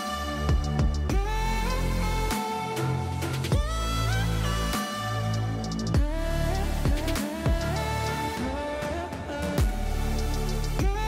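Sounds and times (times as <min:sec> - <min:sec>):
background music with deep bass: 0:00.0 - 0:11.0.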